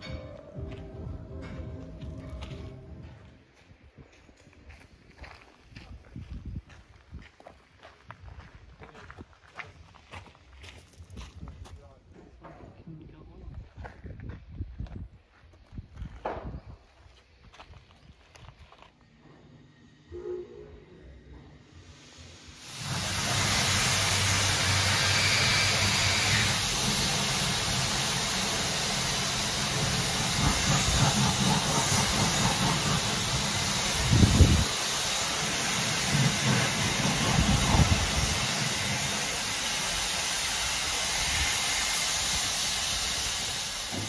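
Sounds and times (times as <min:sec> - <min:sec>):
steam hissing: 0:21.4 - 0:44.0.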